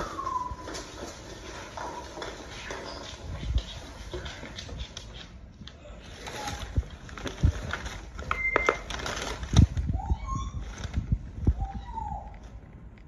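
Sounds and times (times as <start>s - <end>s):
plush toy dragged across floor: 0.0s - 5.0s.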